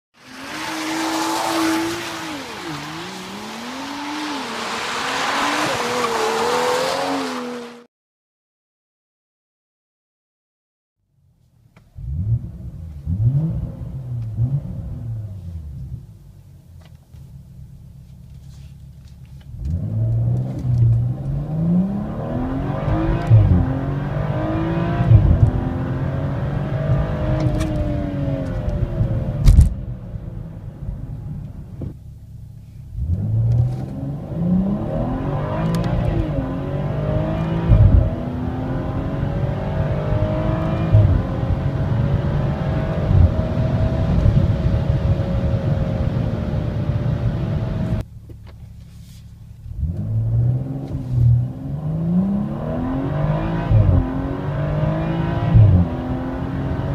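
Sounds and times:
car engine revving through gears: 0:00.2 - 0:07.9, 0:12.0 - 0:15.6, 0:19.5 - 0:29.6, 0:32.9 - 0:48.0, 0:49.7 - 0:56.9.

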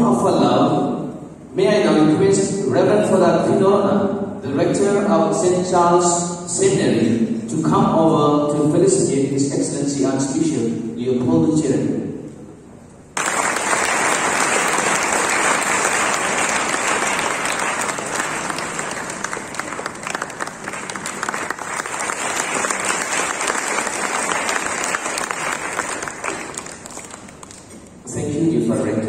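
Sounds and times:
audience applauding: 0:13.2 - 0:27.7.

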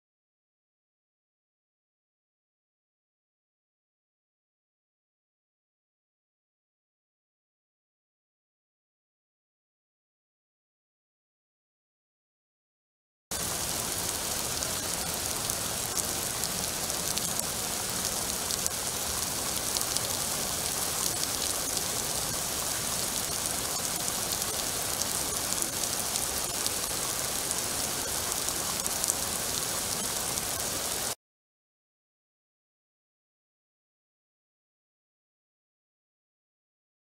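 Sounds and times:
steady rain falling: 0:13.3 - 0:31.2.

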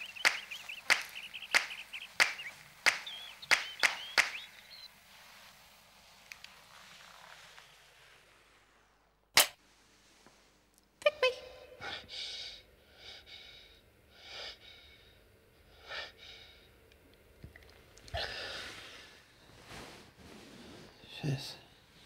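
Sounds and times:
sharp crack: 0:00.0 - 0:04.7, 0:09.3 - 0:09.6.

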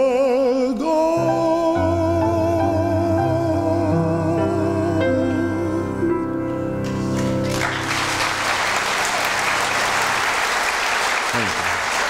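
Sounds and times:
audience applause: 0:07.0 - 0:12.0.

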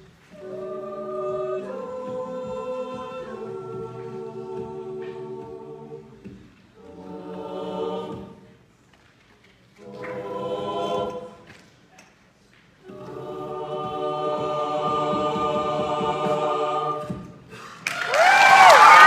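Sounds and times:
a cappella group singing chords: 0:00.0 - 0:08.7, 0:09.7 - 0:11.7, 0:12.8 - 0:17.8
applause and cheering: 0:17.8 - 0:19.0.

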